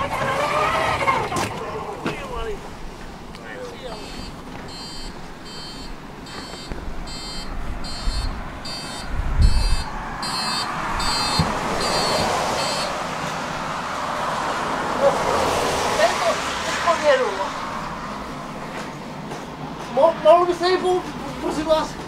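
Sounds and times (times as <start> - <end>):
high electronic warning beeps: 3.9 - 13.0.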